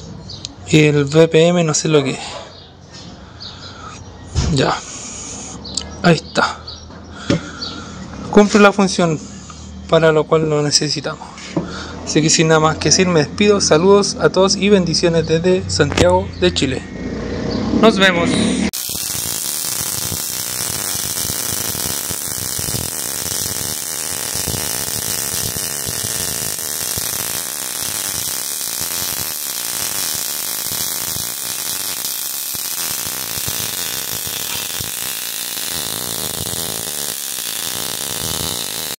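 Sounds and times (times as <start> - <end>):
electronic whirring hum with hiss: 18.8 - 39.0.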